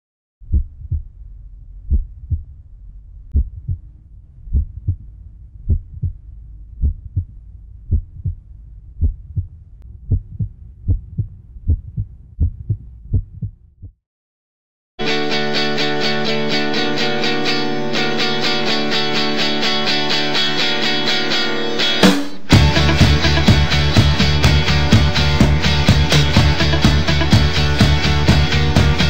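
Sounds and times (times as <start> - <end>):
heartbeat thumps: 0.4 - 2.6, 3.3 - 14.0, 22.5 - 29.0
low rumble: 0.4 - 13.9.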